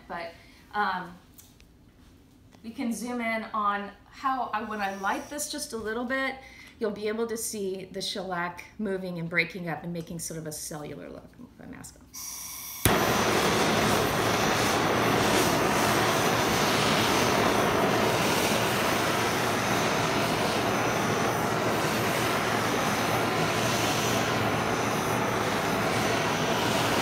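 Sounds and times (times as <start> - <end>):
blowtorch flame hissing: 12.2 - 27.0
blowtorch ignition click: 12.2 - 27.0.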